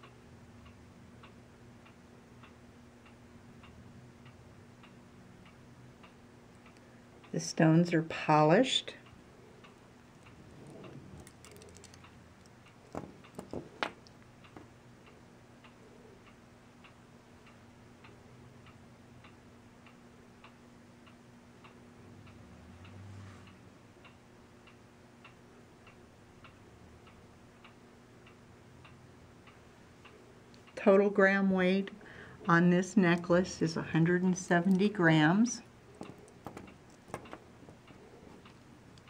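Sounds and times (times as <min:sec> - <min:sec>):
clock ticking: 0:31.8 - 0:39.0.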